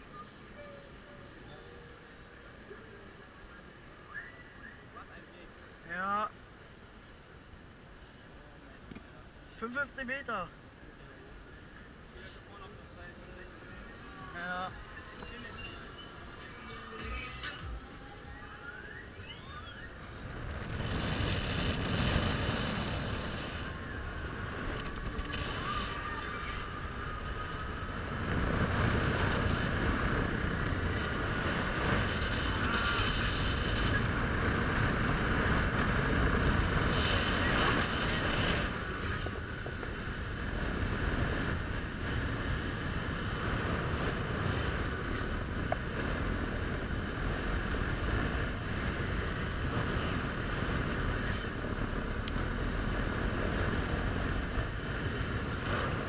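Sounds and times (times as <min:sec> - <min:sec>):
steady higher whir: 0:11.1 - 0:56.0
wind rushing over microphone: 0:13.6 - 0:56.0.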